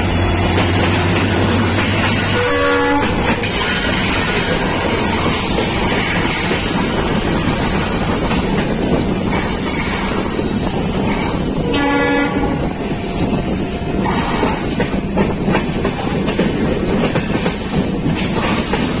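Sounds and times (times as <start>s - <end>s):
diesel locomotive: 0.0s - 19.0s
train wheels clattering on rails: 0.0s - 19.0s
train horn: 2.2s - 3.6s, 11.6s - 12.8s.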